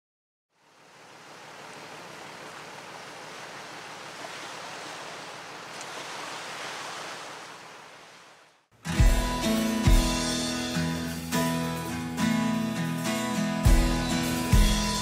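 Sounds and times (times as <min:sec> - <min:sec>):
small waves washing on shore: 0:00.6 - 0:08.7.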